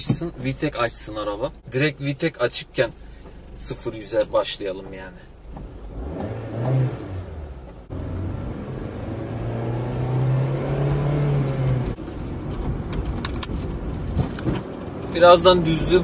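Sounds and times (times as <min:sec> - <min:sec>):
car engine revving high: 0:05.8 - 0:12.0.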